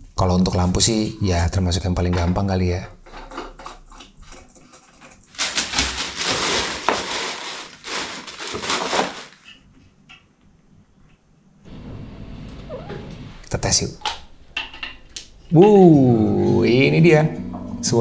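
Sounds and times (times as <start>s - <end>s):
packaging rustling and crinkling: 4.8s - 9.6s.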